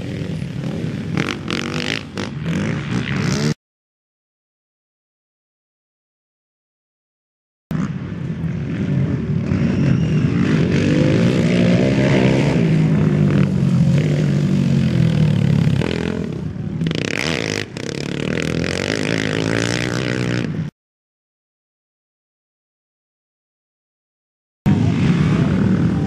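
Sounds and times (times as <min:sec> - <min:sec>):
quad engines revving: 0:00.0 - 0:03.6, 0:07.7 - 0:20.7.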